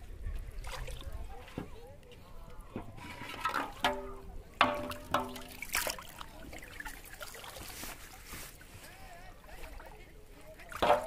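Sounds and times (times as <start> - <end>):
water sloshing and trickling: 0.0 - 11.0
knocks on metal basin: 3.8 - 5.6, 10.8 - 11.0.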